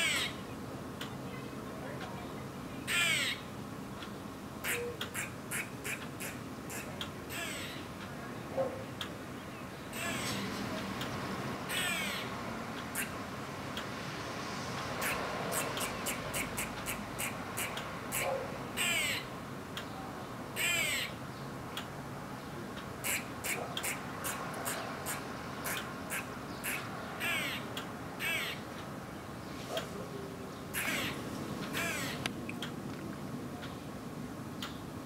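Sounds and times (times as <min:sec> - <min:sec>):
squirrel alarm calls: 0:00.0 - 0:00.4, 0:02.8 - 0:03.5, 0:04.6 - 0:08.0, 0:09.9 - 0:10.4, 0:11.7 - 0:13.2, 0:15.0 - 0:19.4, 0:20.6 - 0:21.2, 0:22.8 - 0:28.8, 0:30.7 - 0:32.8.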